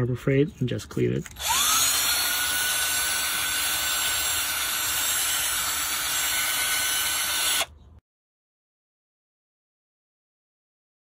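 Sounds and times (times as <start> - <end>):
cordless drill whine: 1.4 - 7.7.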